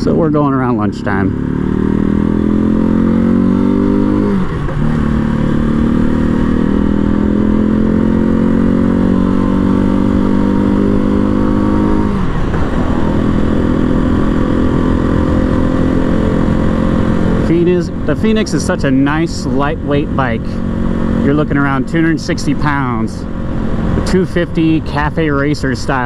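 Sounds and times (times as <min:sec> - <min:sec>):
motorcycle engine accelerating: 0:00.0 - 0:26.0.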